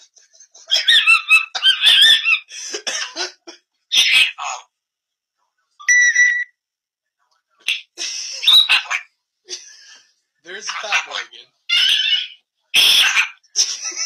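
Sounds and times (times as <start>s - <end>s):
parrots squawking: 0.7s - 2.5s, 3.9s - 4.7s, 7.6s - 9.2s, 10.5s - 13.6s.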